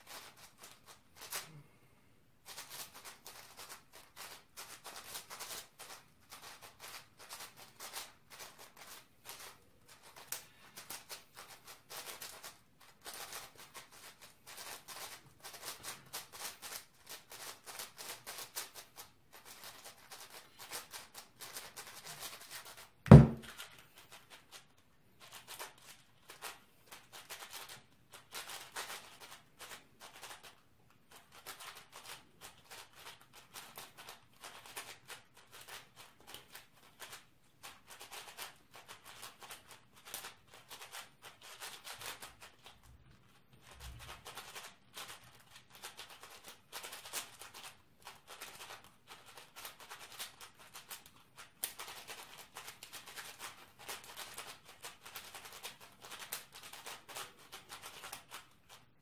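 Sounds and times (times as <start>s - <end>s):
cube thud on desk: 23.1s - 23.5s.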